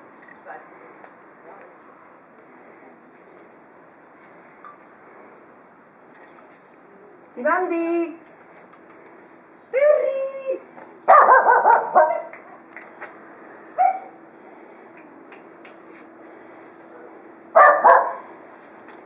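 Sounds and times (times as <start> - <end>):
dog barking: 11.1 - 12.3, 13.8 - 14.1, 17.6 - 18.3.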